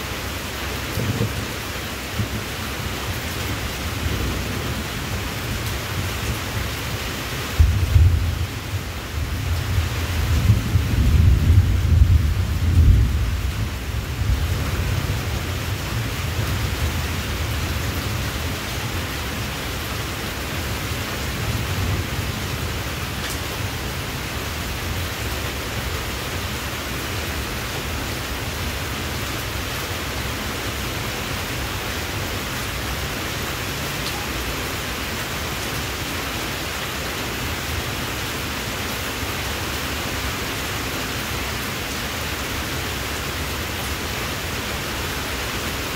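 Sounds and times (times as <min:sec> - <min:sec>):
heavy rain hissing: 0:00.0 - 0:45.9.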